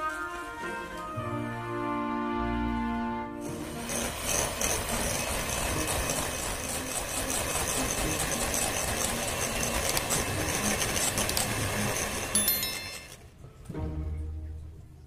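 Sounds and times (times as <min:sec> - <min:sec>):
electric hand mixer running: 0:03.4 - 0:13.2.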